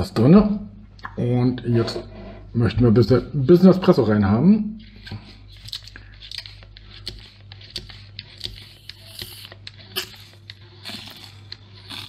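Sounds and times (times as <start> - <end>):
steady low hum: 0.0 - 12.0
pump clicks and squishing strokes: 5.0 - 12.0.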